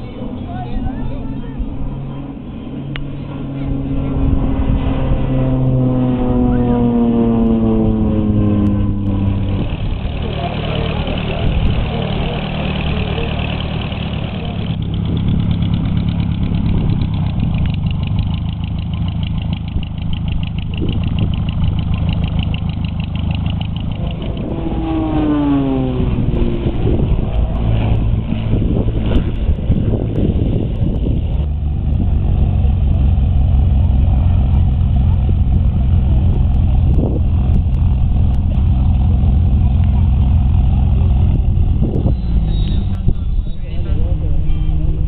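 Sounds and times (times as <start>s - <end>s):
propeller aircraft engines droning: 0.0s - 45.0s.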